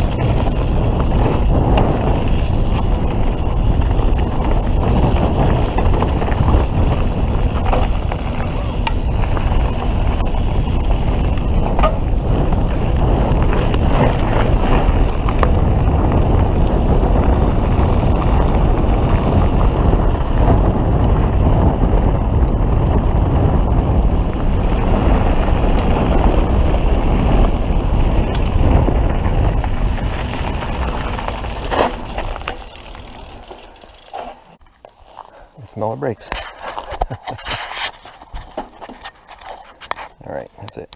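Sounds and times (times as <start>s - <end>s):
wind buffeting microphone: 0.0s - 34.2s
bike tyres rolling on gravel: 0.0s - 40.9s.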